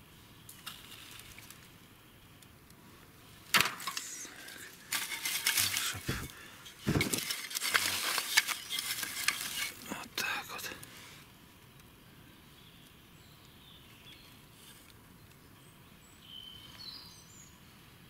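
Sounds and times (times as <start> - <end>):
crackling rustling and clinking: 0.5 - 1.9, 3.4 - 10.9.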